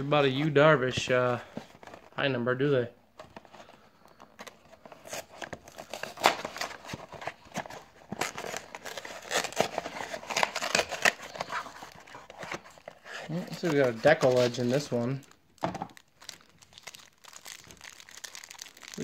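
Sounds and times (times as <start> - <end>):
cardboard box tearing: 5.0 - 14.7.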